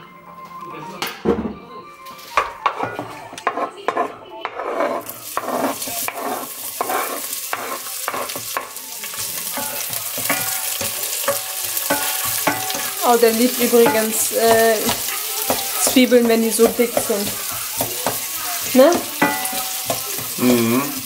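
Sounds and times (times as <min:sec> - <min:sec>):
spatula scraping wooden board: 0:03.4 - 0:07.8
onions sizzling: 0:04.4 - 0:21.0.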